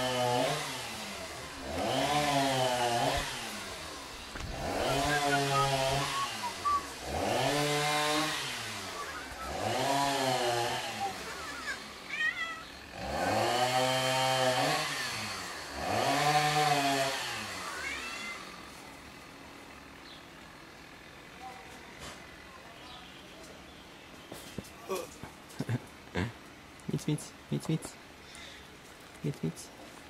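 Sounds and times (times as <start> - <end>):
cat yowling: 11.1 - 12.8.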